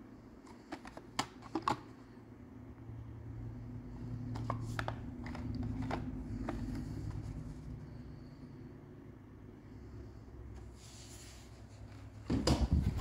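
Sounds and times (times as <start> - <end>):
packaging clicks and taps: 0.4 - 1.9, 4.3 - 7.4.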